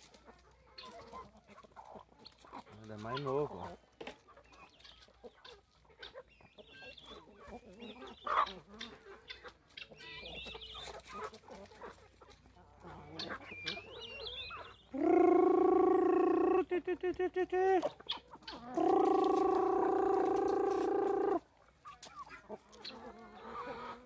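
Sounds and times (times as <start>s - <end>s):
chickens clucking softly: 0.0s - 24.0s
high chirping calls: 13.1s - 16.6s
loud drawn-out chicken call: 14.9s - 16.6s, 18.6s - 21.4s.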